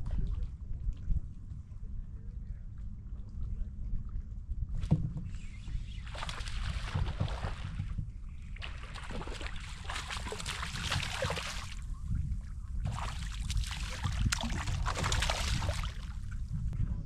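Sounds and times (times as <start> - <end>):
steady low rumble: 0.0 - 17.0
fish splashing in water: 8.6 - 11.8, 12.9 - 16.3.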